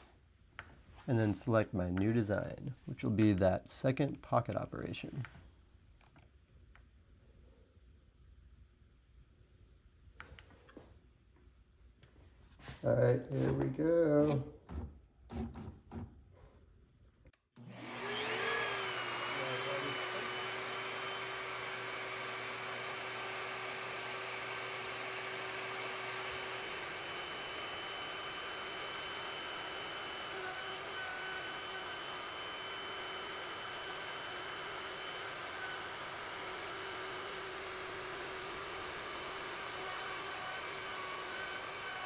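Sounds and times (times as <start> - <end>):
end mill cutting wood: 17.6 - 42.0
router motor whining: 17.6 - 42.0.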